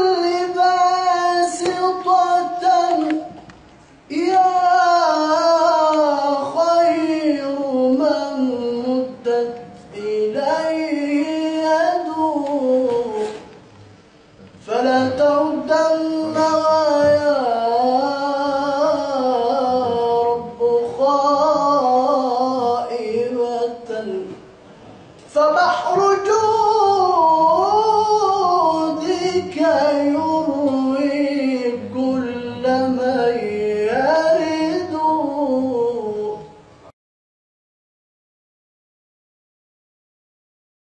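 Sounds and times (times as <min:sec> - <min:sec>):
man chanting: 0:00.0 - 0:03.5, 0:04.1 - 0:13.6, 0:14.5 - 0:24.4, 0:25.3 - 0:36.6
man chanting solo: 0:25.4 - 0:36.6.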